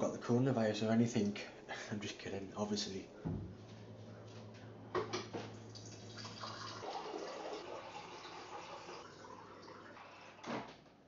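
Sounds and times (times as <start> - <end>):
water pouring into a glass: 5.7 - 10.4.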